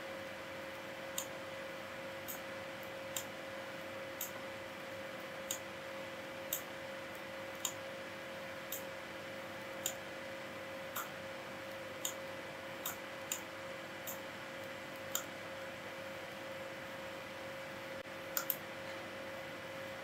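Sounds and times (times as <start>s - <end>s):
faint electrical hum and hiss: 0.0s - 20.0s
computer mouse clicks: 2.3s - 3.3s, 6.5s - 6.7s, 7.5s - 7.8s, 8.7s - 8.9s, 12.8s - 15.3s, 18.3s - 18.6s.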